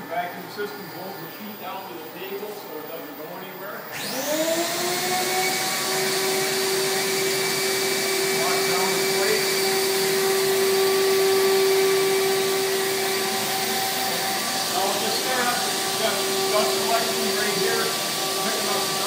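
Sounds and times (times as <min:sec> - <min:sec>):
vacuum system rushing and whining: 0:04.0 - 0:19.0.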